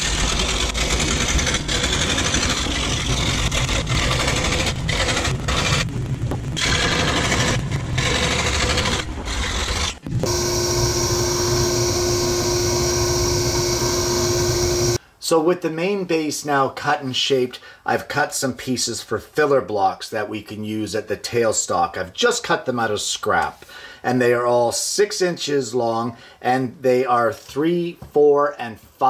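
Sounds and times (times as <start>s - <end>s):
belt sander humming: 0.0s - 5.9s, 6.6s - 15.0s
scroll saw cutting plywood: 0.0s - 5.9s, 6.6s - 15.0s.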